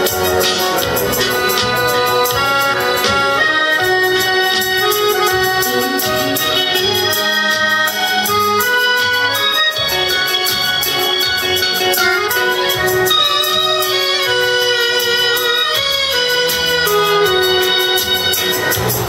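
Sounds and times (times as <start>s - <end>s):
alto saxophone melody: 0.0s - 19.0s
piano accordion: 0.0s - 19.0s
steady bass notes: 0.0s - 19.0s.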